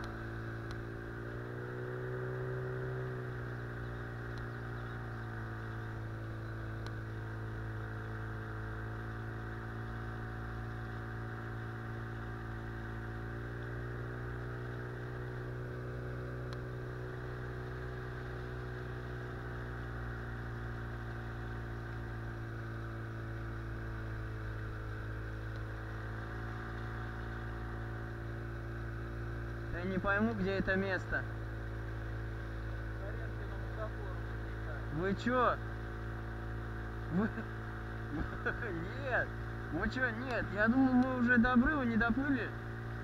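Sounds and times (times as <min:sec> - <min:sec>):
outboard motor drone: 0:00.0 - 0:43.0.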